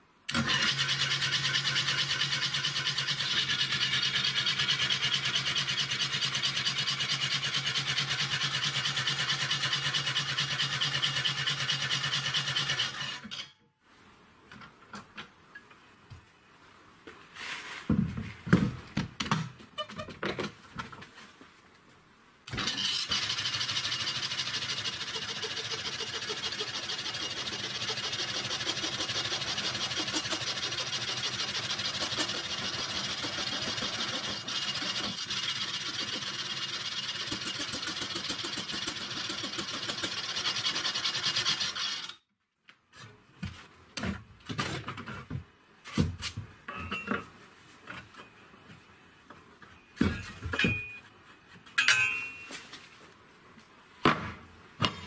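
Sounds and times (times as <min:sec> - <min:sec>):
saw blade rasping through wood: 0:00.6 - 0:13.4, 0:22.6 - 0:42.1
motor running: 0:22.5 - 0:42.1.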